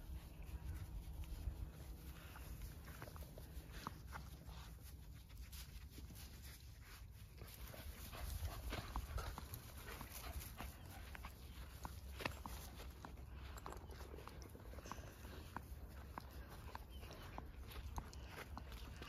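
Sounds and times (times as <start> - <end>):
dogs panting: 0.0 - 19.0.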